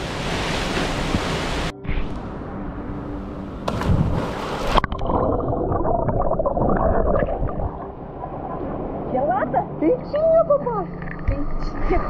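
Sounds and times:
person splashing into water: 3.7 - 7.8
muffled water bubbling and gurgling: 3.9 - 12.0.

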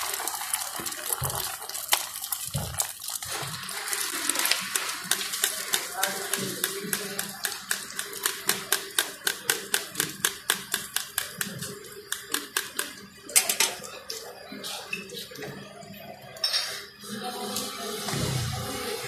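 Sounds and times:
metal spatula tapping on griddle: 5.1 - 12.9.

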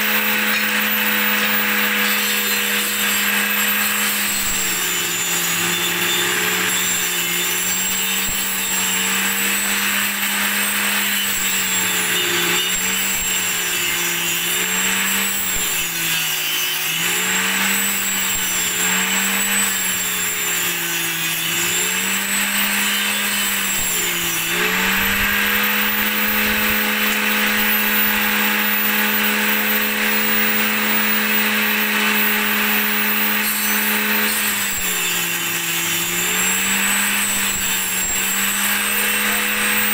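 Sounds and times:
saw blade rasping through wood: 0.0 - 39.9
table saw motor hum: 0.0 - 39.9.

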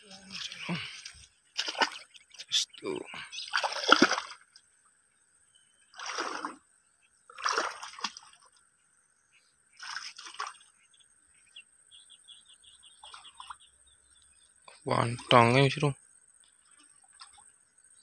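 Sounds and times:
footsteps sloshing through water: 0.0 - 2.6, 3.4 - 4.6, 6.0 - 6.6, 7.3 - 8.6, 9.8 - 10.7.

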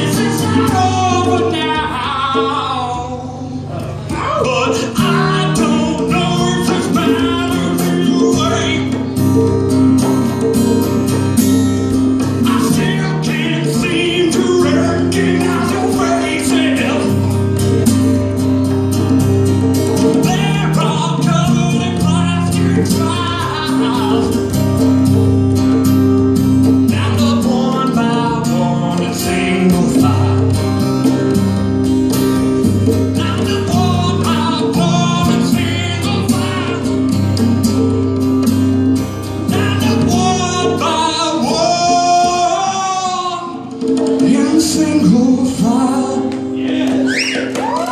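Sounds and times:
man singing: 0.0 - 9.2, 12.2 - 17.5, 20.1 - 24.6, 26.8 - 30.8, 32.8 - 37.1, 39.4 - 47.4
hand-played congas: 0.0 - 47.9
strummed acoustic guitar: 0.0 - 47.9.

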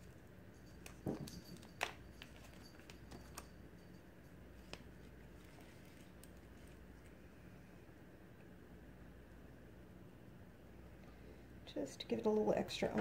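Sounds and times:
room hum: 0.0 - 13.0.

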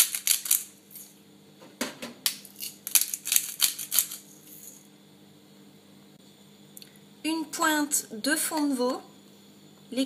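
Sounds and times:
pepper mill grinding: 0.0 - 1.1, 2.3 - 4.8.

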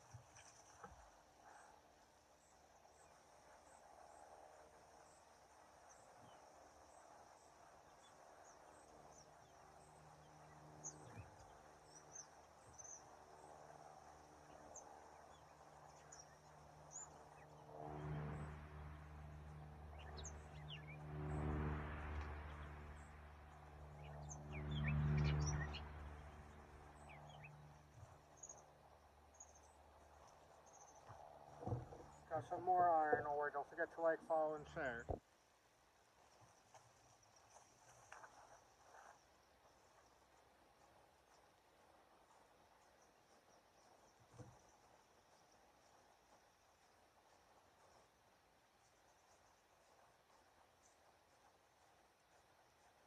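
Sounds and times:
small birds chirping: 4.9 - 18.5, 19.2 - 21.0, 22.2 - 33.1, 36.2 - 53.0
low engine hum: 6.4 - 35.2.

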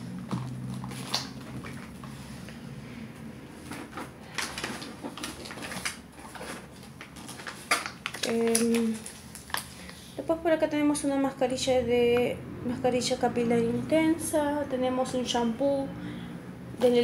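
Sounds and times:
packaging knocks and rustles: 0.2 - 2.1, 3.6 - 10.0.

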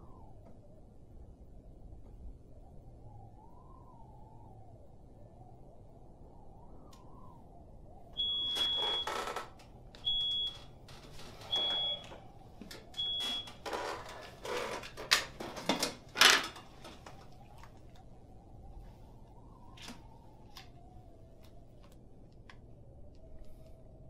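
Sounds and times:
high electronic beeps: 8.2 - 9.3.

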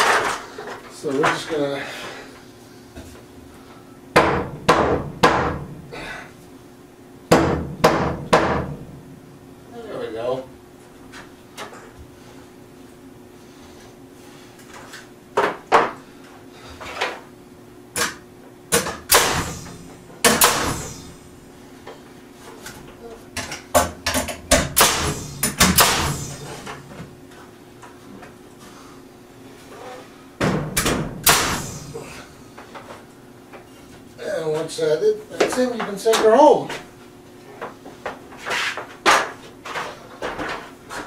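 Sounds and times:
nail gun bangs: 4.2 - 5.7, 7.3 - 8.8, 18.0 - 21.0, 23.8 - 26.5, 30.5 - 31.9.

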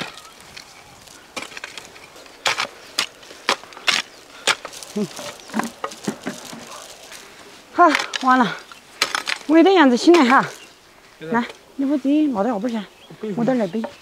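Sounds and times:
hoe chopping into soil: 1.1 - 7.0, 9.0 - 10.5.

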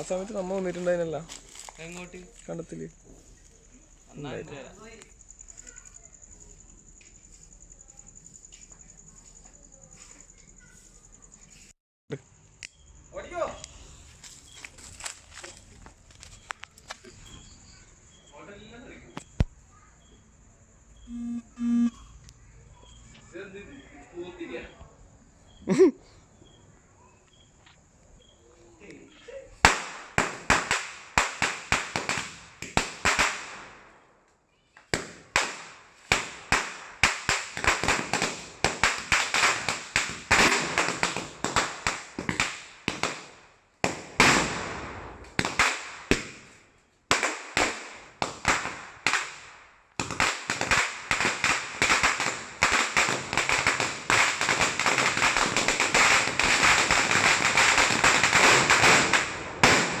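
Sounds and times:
firecrackers banging: 29.6 - 33.9, 34.9 - 60.0.

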